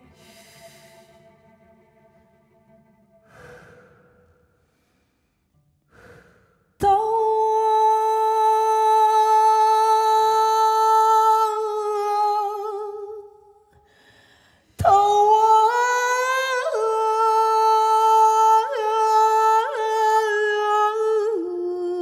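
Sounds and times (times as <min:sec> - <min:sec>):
soft breaths: 0:03.2 - 0:06.8.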